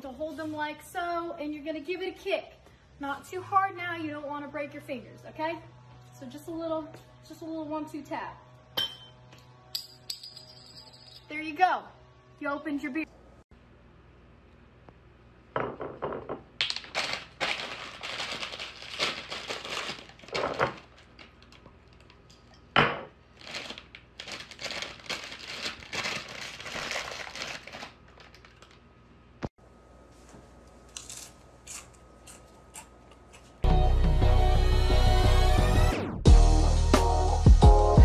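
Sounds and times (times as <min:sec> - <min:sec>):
plastic chip bag crinkling: 0:16.6 - 0:22.6, 0:23.3 - 0:29.0.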